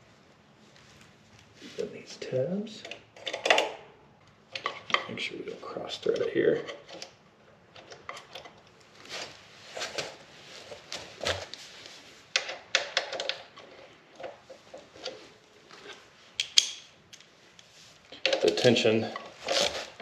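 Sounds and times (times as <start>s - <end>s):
soft rustling: 0.0s - 2.3s, 8.8s - 12.3s, 17.2s - 20.0s.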